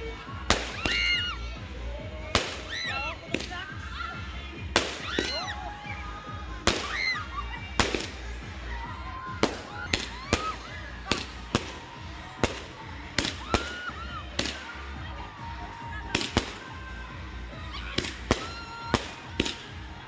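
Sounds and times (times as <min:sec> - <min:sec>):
fireworks bangs: 0:00.5 - 0:01.2, 0:02.3 - 0:03.7, 0:04.7 - 0:05.5, 0:06.6 - 0:08.3, 0:09.3 - 0:15.0, 0:15.7 - 0:16.8, 0:17.9 - 0:19.8.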